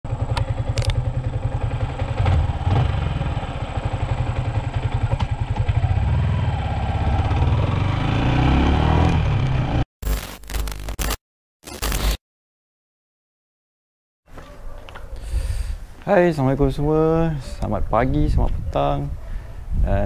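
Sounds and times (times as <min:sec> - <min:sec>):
motorcycle engine running: 0:00.1 - 0:09.8.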